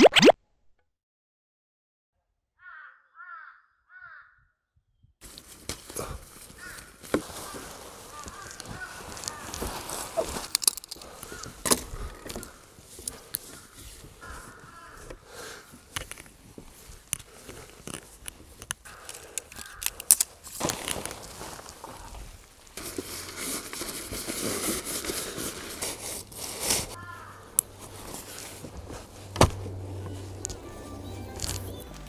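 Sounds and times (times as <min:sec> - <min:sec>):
crows cawing: 0:02.6 - 0:04.5, 0:06.0 - 0:10.4, 0:11.0 - 0:15.8, 0:18.8 - 0:20.1, 0:27.0 - 0:28.4
tent fabric rustling: 0:05.2 - 0:18.6, 0:20.3 - 0:32.0
tent poles clicking and knocking: 0:05.2 - 0:32.0.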